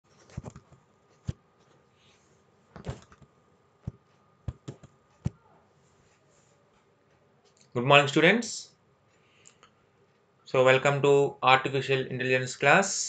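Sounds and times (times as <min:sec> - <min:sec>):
faint room hiss: 0:00.1 - 0:13.0
sharp taps and knocks: 0:03.9 - 0:05.4.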